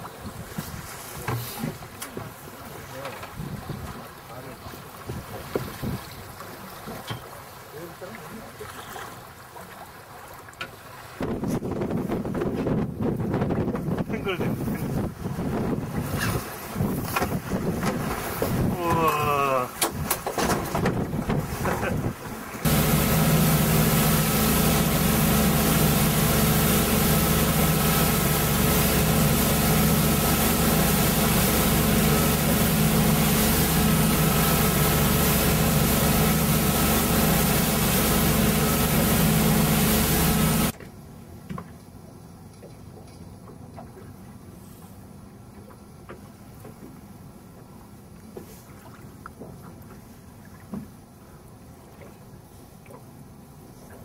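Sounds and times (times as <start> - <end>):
rushing wind and spray: 5.0 - 6.7, 10.8 - 19.2, 19.8 - 40.8
boat engine running: 11.2 - 40.8.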